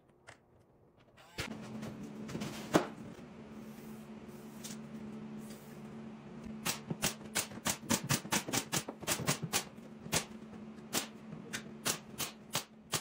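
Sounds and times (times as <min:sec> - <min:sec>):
nail gun firing: 0:11.8 - 0:13.0.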